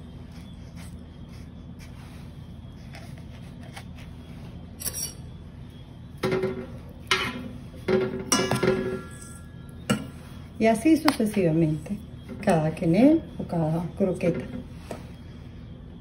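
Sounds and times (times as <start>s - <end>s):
low hum: 0.0s - 16.0s
spoon clinking metal bowl: 6.2s - 10.1s.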